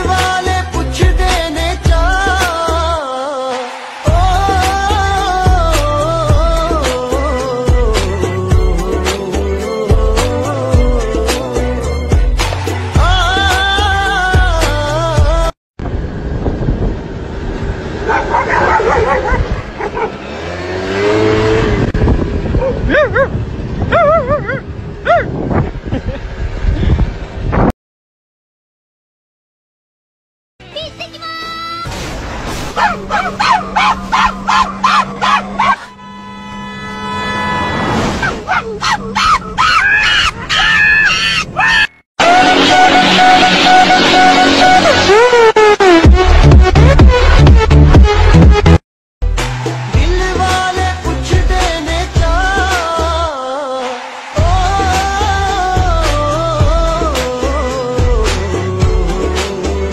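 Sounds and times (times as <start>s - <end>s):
car road noise: 11.4s - 14.2s, 15.8s - 27.7s, 31.9s - 41.9s, 49.2s - 56.0s
dog yelping barks: 18.1s - 20.2s, 22.6s - 23.3s, 23.9s - 25.3s, 32.8s - 35.9s, 38.2s - 41.9s
chimpanzee hooting: 33.2s - 35.8s, 38.2s - 42.0s.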